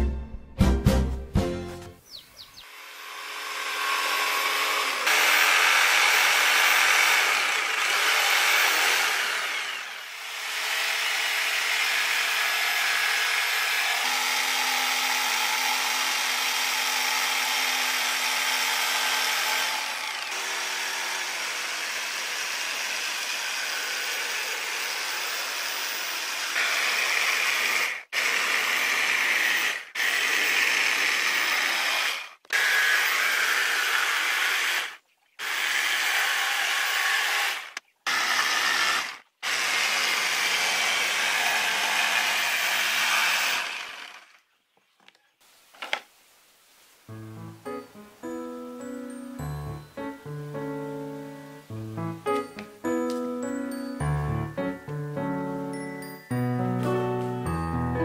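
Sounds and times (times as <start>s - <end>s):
jigsaw cutting wood: 2.7s - 44.4s.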